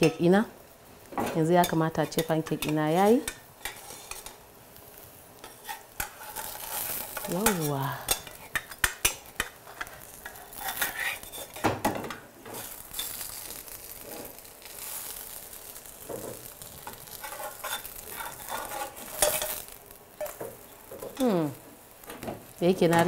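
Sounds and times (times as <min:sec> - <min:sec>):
frying sizzle: 0:00.0 - 0:23.0
metal spatula scraping pan: 0:01.6 - 0:04.4, 0:05.4 - 0:11.6, 0:16.8 - 0:20.4.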